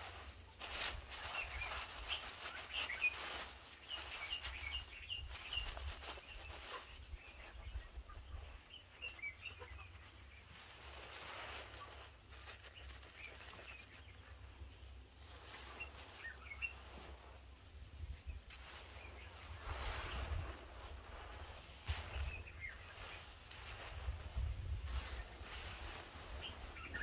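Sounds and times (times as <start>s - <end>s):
high sweeping bird whistles: 0.7s - 7.8s, 15.4s - 16.9s, 24.9s - 27.0s.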